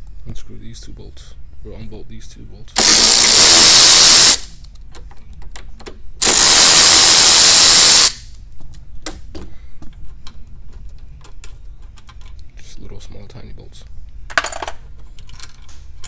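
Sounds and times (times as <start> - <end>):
power driver spinning: 2.8 - 4.5, 6.2 - 8.2.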